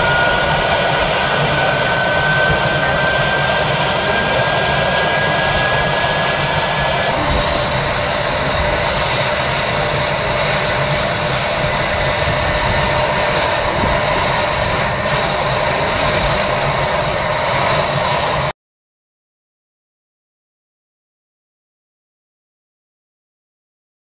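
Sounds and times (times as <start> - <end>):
helicopter turbine whine: 0.0 - 18.5
low rotor rumble: 0.0 - 18.5.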